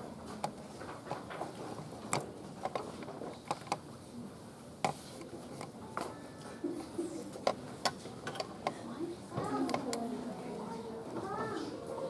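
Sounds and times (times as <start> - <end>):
crowd murmur: 4.0 - 12.0.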